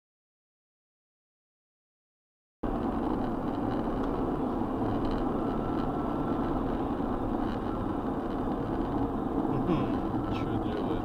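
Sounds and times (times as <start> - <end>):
car road and engine noise: 2.6 - 11.0.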